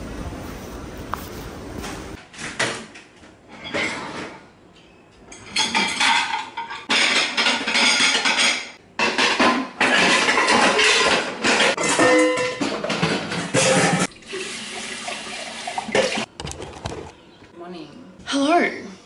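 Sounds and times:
pots and pans clattering: 0:05.3 - 0:14.1.

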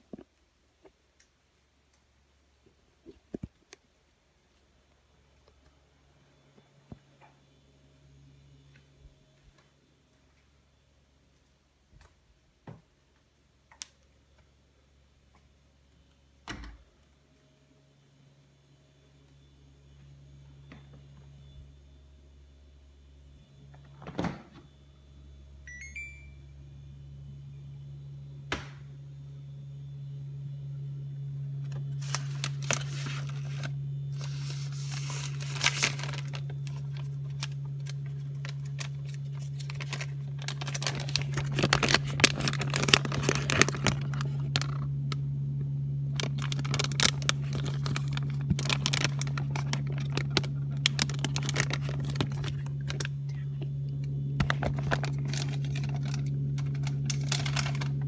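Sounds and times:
steady low hum: 0:00.0 - 0:58.0
plastic packaging crinkling: 0:31.6 - 0:45.3, 0:46.1 - 0:58.0.

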